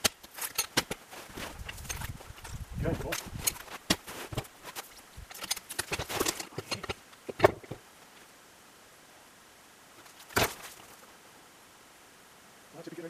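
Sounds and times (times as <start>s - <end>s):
boots crunching in snow: 1.1s - 5.0s.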